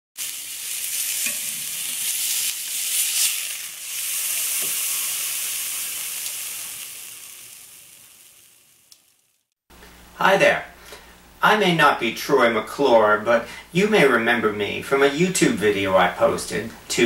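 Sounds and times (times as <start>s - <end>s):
steak sizzling in a skillet: 0.2s - 9.5s.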